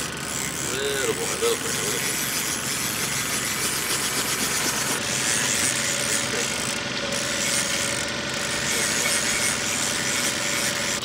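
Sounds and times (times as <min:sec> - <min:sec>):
boat motor droning: 0:00.0 - 0:11.0
thin whine: 0:00.0 - 0:11.0.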